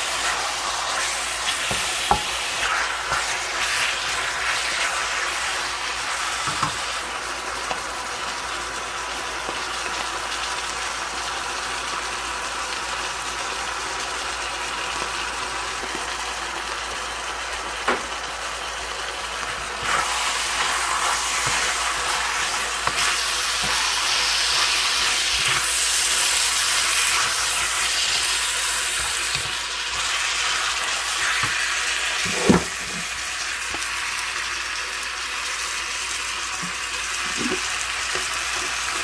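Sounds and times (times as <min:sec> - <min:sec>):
chicken sizzling in a wok: 0:00.0 - 0:39.0
spatula knocking against pan: 0:01.7 - 0:02.4.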